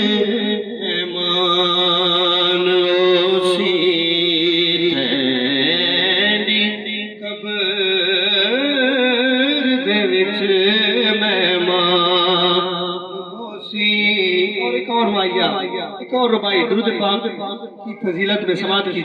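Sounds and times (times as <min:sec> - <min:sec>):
man singing into microphone: 0:00.0 - 0:19.0.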